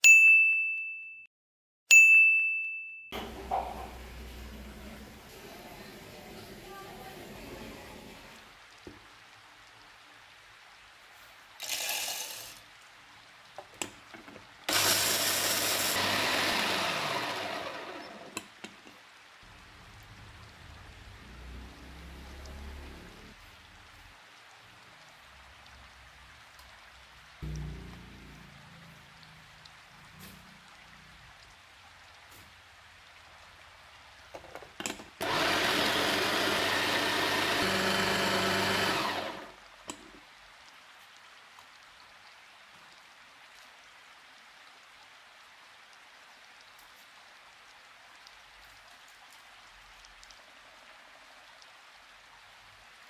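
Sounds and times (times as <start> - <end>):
chopper motor grinding nuts: 11.6 - 12.6, 14.7 - 18.5, 35.2 - 39.6
peanuts poured into plastic bowl: 11.6 - 12.6.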